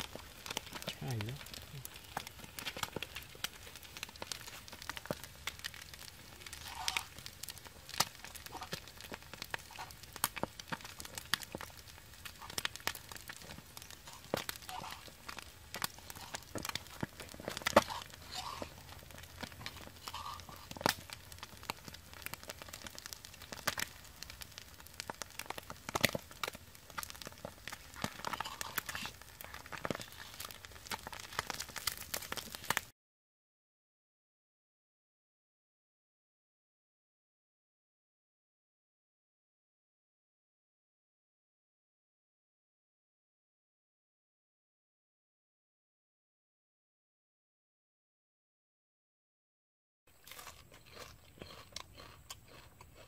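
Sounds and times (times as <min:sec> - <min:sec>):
wood fire crackling: 0:00.0 - 0:32.9.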